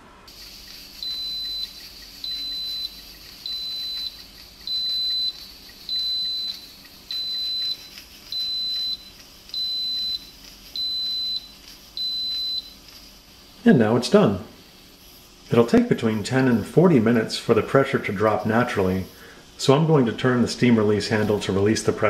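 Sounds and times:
pressure cooker beeping: 0:00.3 - 0:12.9.

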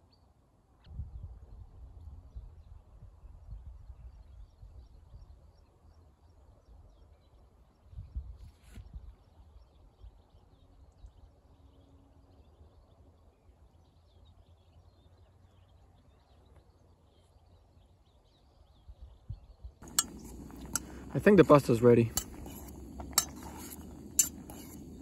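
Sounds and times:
faint open-air ambience: 0:00.0 - 0:25.0
metal utensil clinking on pot: 0:19.8 - 0:25.0.

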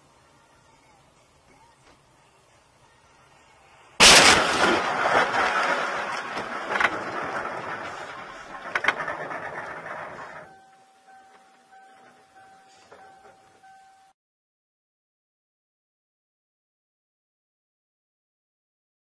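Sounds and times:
vehicle crash: 0:04.0 - 0:10.6
steady high tone: 0:09.5 - 0:14.2.

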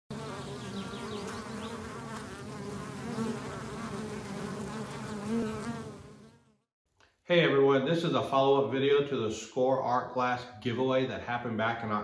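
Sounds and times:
flying insects buzzing: 0:00.1 - 0:06.7.

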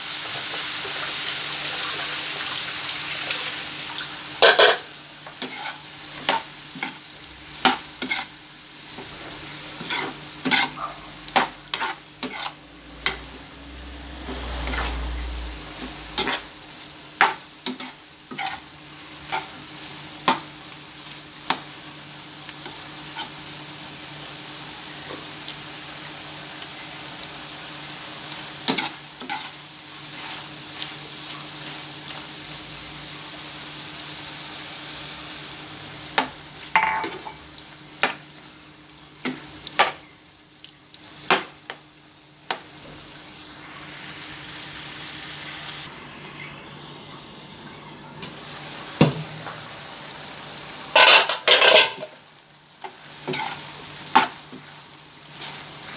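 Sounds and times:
meat sizzling in a frying pan: 0:00.0 - 0:47.6, 0:48.2 - 0:55.9
metal ladle scraping a pan: 0:04.4 - 0:07.0, 0:07.6 - 0:10.8, 0:11.4 - 0:13.4, 0:16.1 - 0:16.5, 0:17.2 - 0:18.7, 0:50.9 - 0:52.2, 0:53.2 - 0:54.4.

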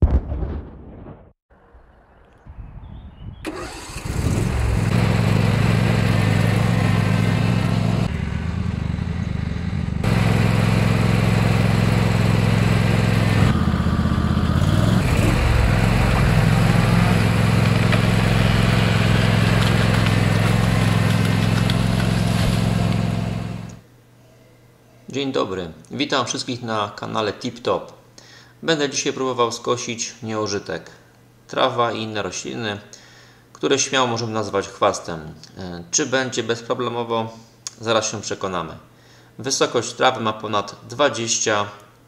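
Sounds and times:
tractor engine cranking and running: 0:03.5 - 0:08.1, 0:10.0 - 0:23.8.

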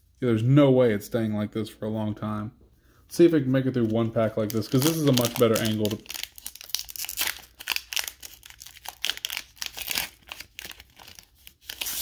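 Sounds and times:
foil wrapper crinkling: 0:03.8 - 0:12.0.

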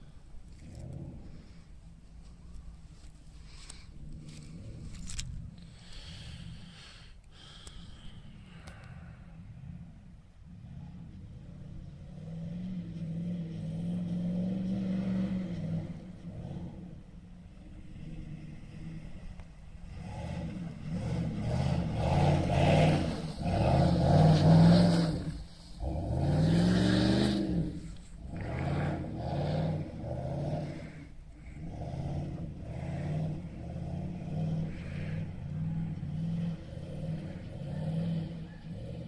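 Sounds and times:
car engine revving: 0:08.3 - 0:39.0.

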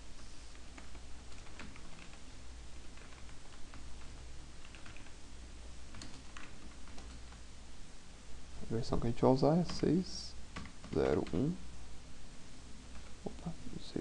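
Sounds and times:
low steady hum: 0:00.0 - 0:14.0
keyboard typing: 0:00.5 - 0:02.2, 0:02.8 - 0:05.2, 0:05.9 - 0:07.4, 0:09.6 - 0:11.5, 0:12.9 - 0:13.4.

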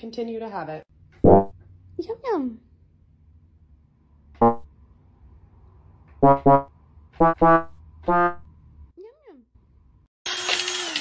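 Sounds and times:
electronic keyboard notes: 0:04.4 - 0:04.6, 0:06.2 - 0:08.4.

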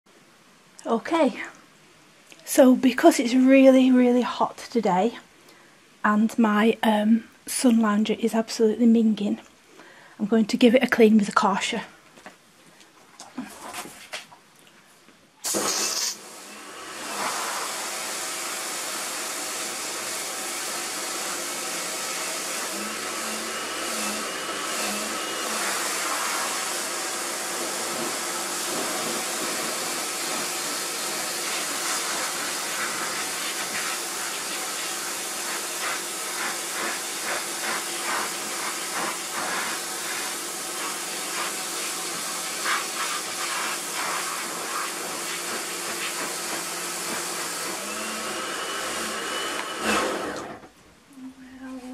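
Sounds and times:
water jet hissing: 0:15.4 - 0:50.5
pressure washer running: 0:15.4 - 0:50.6.

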